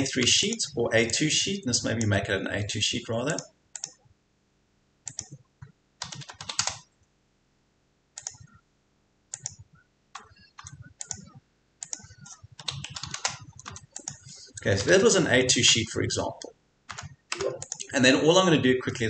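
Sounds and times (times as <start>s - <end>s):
computer keyboard typing: 3.3s - 4.0s, 5.1s - 5.4s, 6.0s - 6.9s, 8.2s - 8.5s, 9.3s - 15.1s, 16.3s - 17.9s.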